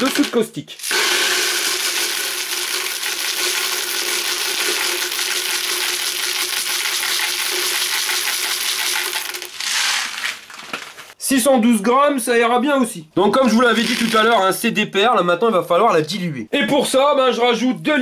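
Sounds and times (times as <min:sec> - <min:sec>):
pellets pattering into plastic bucket: 0:00.0 - 0:11.2, 0:13.7 - 0:14.4.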